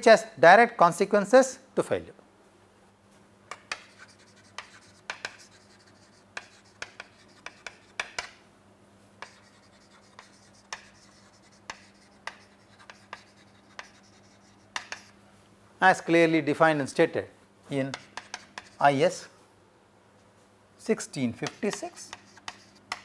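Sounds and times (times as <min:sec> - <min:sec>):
chalk tapping and scratching: 0:03.5 - 0:08.4, 0:09.2 - 0:15.2, 0:17.9 - 0:19.0, 0:21.4 - 0:23.0.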